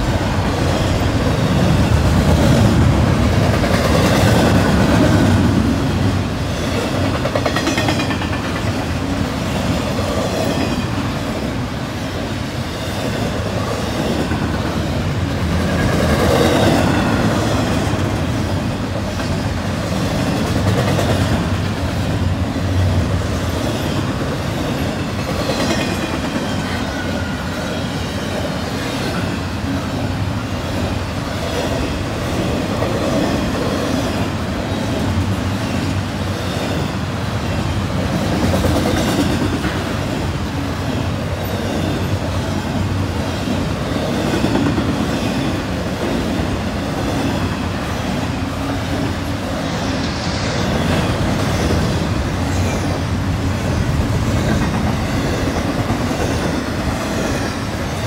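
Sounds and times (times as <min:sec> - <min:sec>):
freight train wheels rumbling on rails: 0:00.0 - 0:58.0
train wheel squeals: 0:23.4 - 0:29.4.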